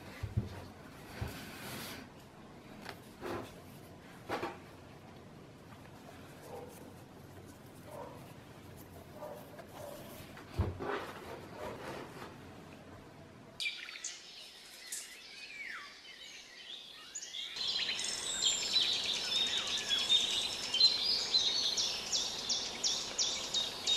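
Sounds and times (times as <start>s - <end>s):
birds chirping and singing: 13.6s - 23.9s.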